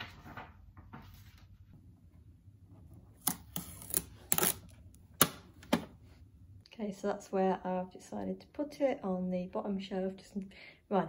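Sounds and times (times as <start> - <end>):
packing tape pulled off: 3.2 - 4.8
paper pages being turned: 3.2 - 4.8.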